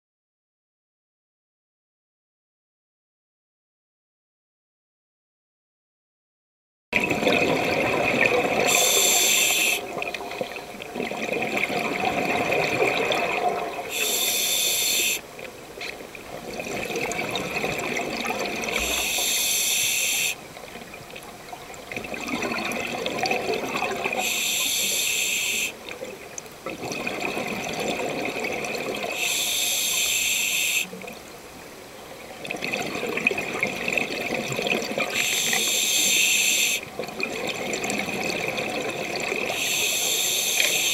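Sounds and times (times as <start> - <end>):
exhaled air bubbling: 7.0 - 15.3, 16.2 - 31.2, 32.4 - 40.9
regulator inhale hiss: 8.6 - 9.9, 13.9 - 15.2, 18.8 - 20.4, 24.1 - 25.8, 29.1 - 31.0, 35.1 - 36.9, 39.5 - 40.9.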